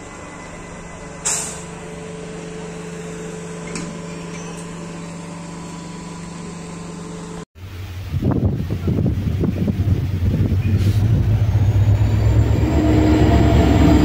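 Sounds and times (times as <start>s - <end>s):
electric train hum with tones: 0.0s - 14.0s
loud uneven low rumble: 7.6s - 14.0s.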